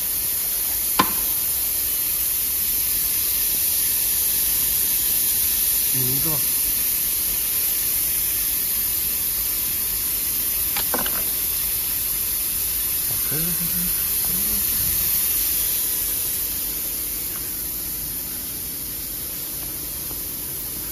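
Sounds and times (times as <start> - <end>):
bottle filling line hiss and hum: 0.0 - 20.9.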